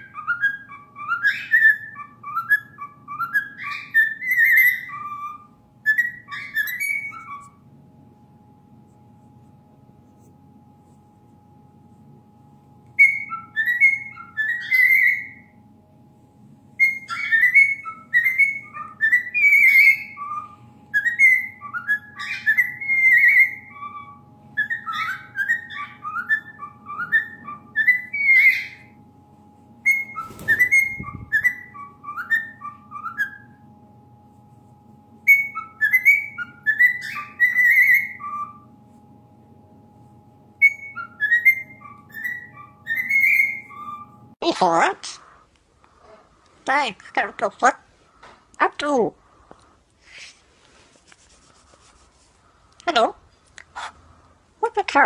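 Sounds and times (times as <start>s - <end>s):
cockatiel whistling: 0.0s - 7.6s, 13.0s - 15.6s, 16.8s - 28.9s, 29.8s - 33.6s, 35.2s - 38.7s, 40.6s - 44.2s.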